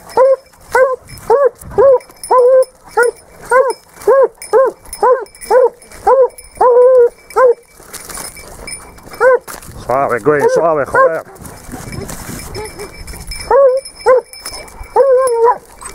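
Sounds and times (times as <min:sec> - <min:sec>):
hound baying: 0:00.0 - 0:15.9.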